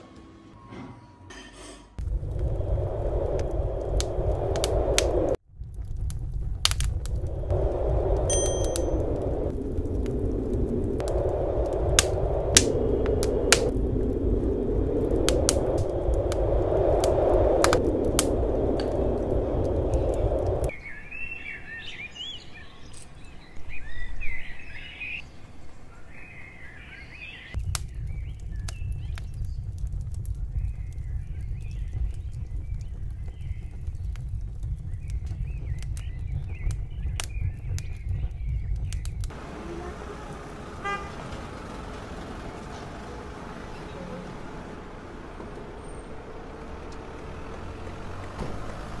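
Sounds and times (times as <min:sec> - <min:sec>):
low rumble: 0:02.0 - 0:20.8, 0:27.6 - 0:39.8
birds chirping: 0:18.3 - 0:29.7.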